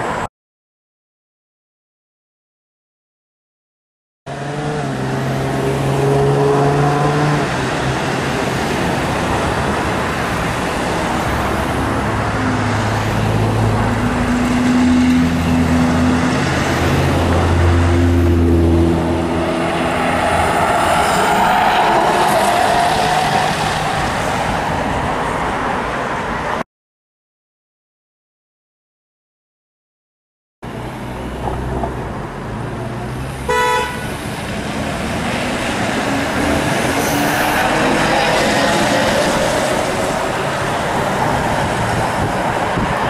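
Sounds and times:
cars passing: 4.3s - 26.6s, 30.6s - 43.0s.

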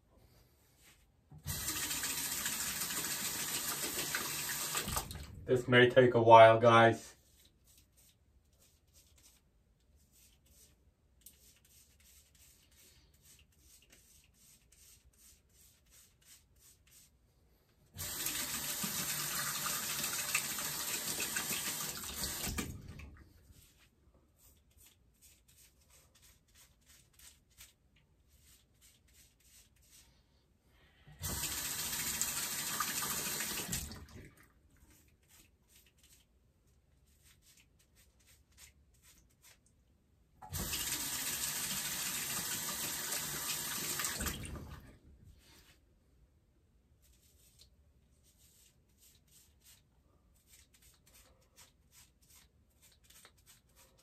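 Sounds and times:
sink tap running: 1.5s - 5.2s, 18.0s - 22.7s, 31.2s - 33.9s, 40.4s - 44.4s.

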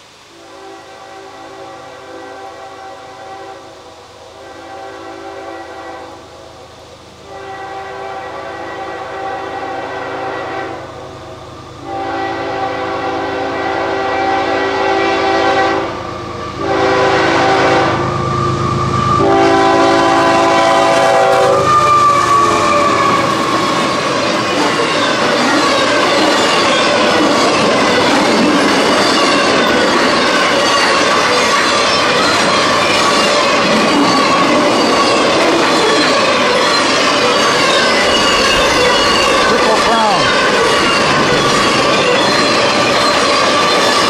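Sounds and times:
passing train engine and wheels: 0.0s - 44.0s
locomotive air horn blasts: 0.3s - 23.7s
metallic wheel squeal: 18.0s - 44.0s.

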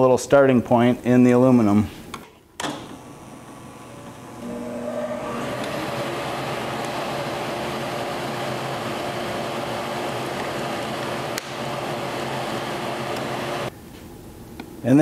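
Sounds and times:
drill press drilling metal: 3.9s - 13.7s
drill press click: 13.1s - 13.3s.

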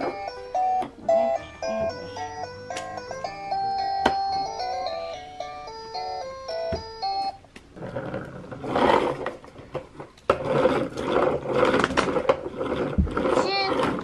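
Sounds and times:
toy electronic jingle: 0.0s - 7.4s.

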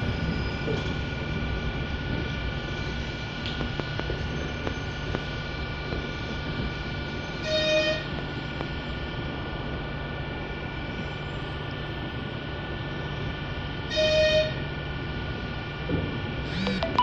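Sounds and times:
moving train hum: 0.0s - 17.0s
train horn toots: 7.4s - 8.1s, 13.9s - 14.6s.

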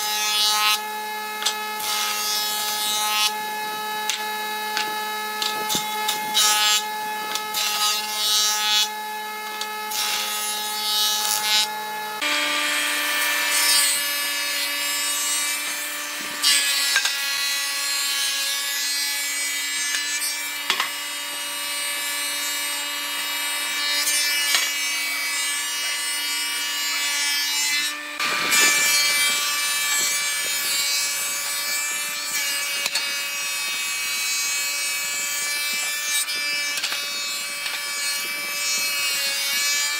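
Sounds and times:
knives cutting wood: 0.0s - 12.4s, 19.9s - 21.0s, 23.9s - 39.9s
planer machine hum and whine: 0.0s - 39.9s.

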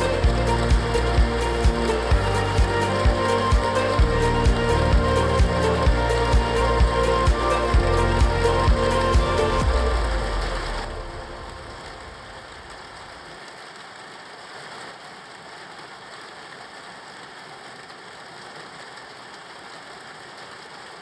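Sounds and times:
background music: 0.0s - 12.7s
steady rain hiss: 0.0s - 21.0s.

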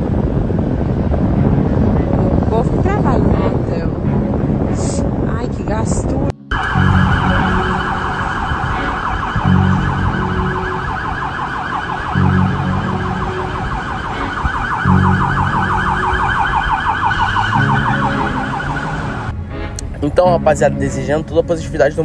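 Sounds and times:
deeper pulsing siren tone: 6.5s - 19.3s
siren yelping: 6.5s - 19.3s.

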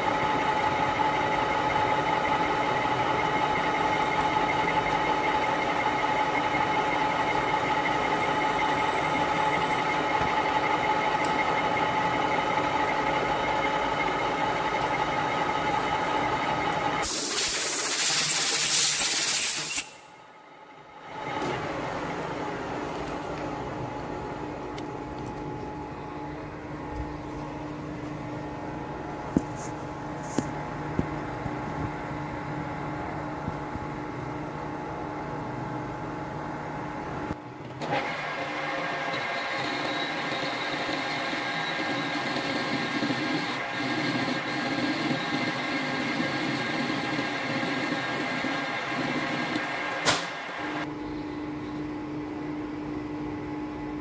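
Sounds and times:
metal lathe humming and whining: 0.1s - 17.1s, 38.8s - 50.9s.

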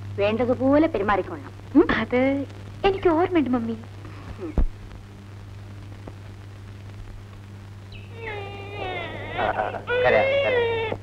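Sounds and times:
low steady hum: 0.0s - 11.0s
infant crying: 8.1s - 11.0s.

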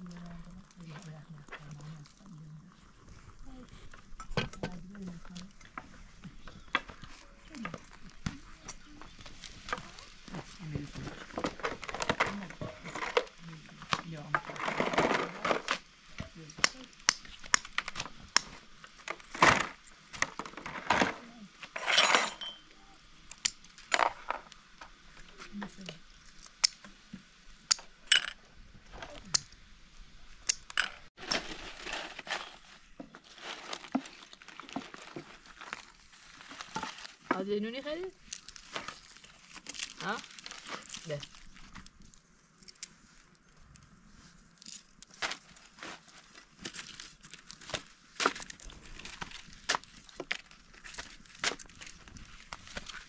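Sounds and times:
flatbread crackling and rustling: 31.0s - 53.0s.

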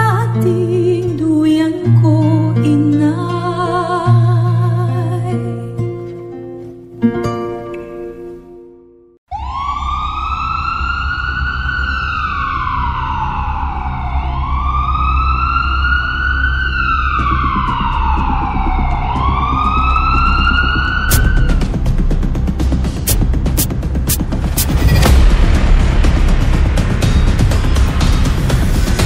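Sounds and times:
ambulance siren wailing: 9.3s - 21.7s
sharp hits: 21.1s - 21.6s.

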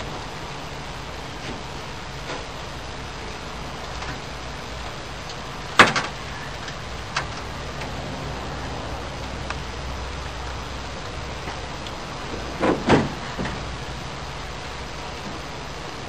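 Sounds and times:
steady low hum: 0.0s - 12.6s
metal truck door clanking: 5.7s - 6.4s, 12.3s - 13.7s.

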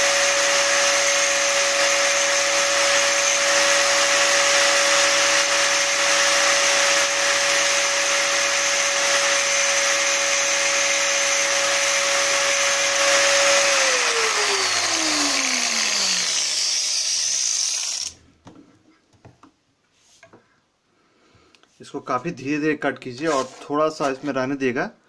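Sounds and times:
angle grinder whining: 0.0s - 18.2s
cutting disc grinding metal: 0.0s - 18.2s.

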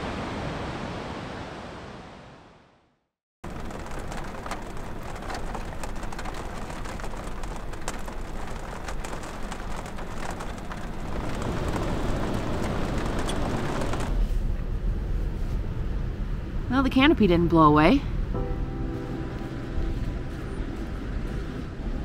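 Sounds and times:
rain tapping on a trailer roof: 3.4s - 14.3s
deep rush of rain: 3.4s - 14.4s
steady rain hiss: 3.5s - 14.2s.

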